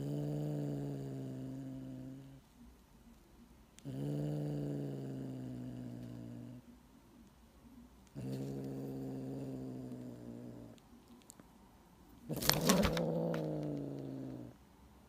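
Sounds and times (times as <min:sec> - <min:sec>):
cat growling: 0:00.0 - 0:02.4, 0:03.8 - 0:06.7, 0:08.1 - 0:10.8, 0:12.2 - 0:14.6.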